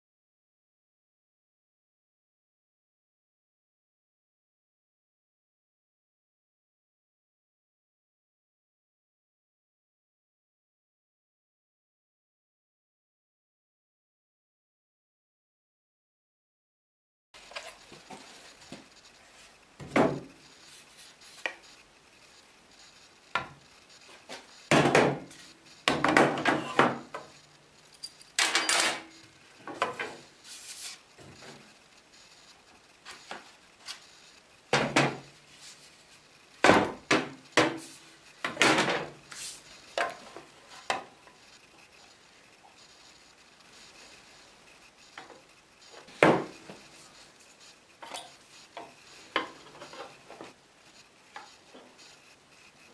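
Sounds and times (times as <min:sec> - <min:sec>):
tools knocking and clattering: 0:27.9 - 0:29.1.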